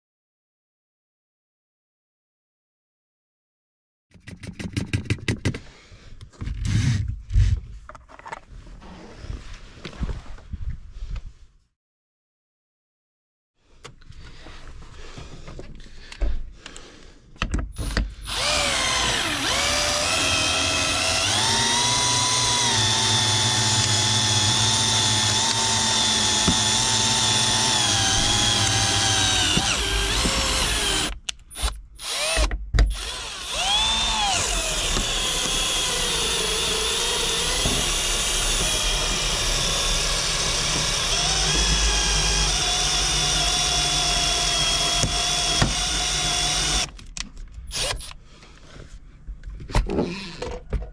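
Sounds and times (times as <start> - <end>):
cordless drill whining: 6.5 - 7.6, 17.8 - 47.0, 47.7 - 48.2, 50.0 - 50.5.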